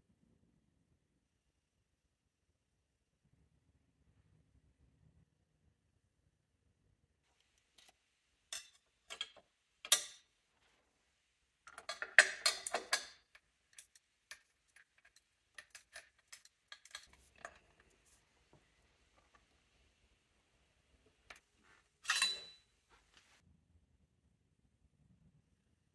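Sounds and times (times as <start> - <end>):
sharp metal clicks and knocks: 11.7 - 17.7.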